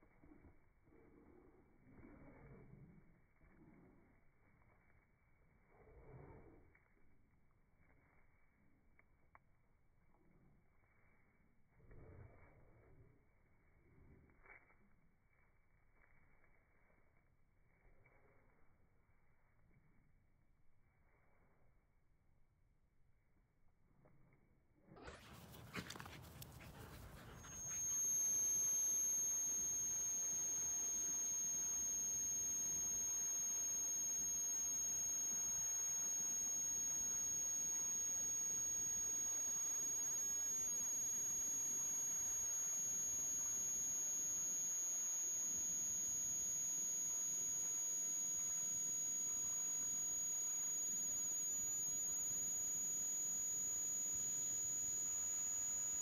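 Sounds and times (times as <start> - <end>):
high-pitched electronic tone: 26.7 - 56.0.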